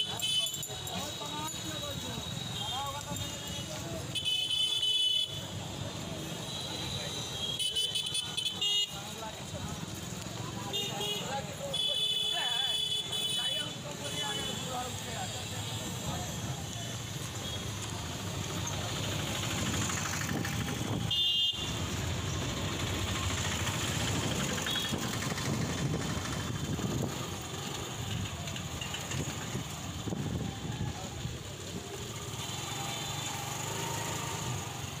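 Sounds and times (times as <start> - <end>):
vehicle engines running: 8.3 - 11.8, 13.5 - 35.0.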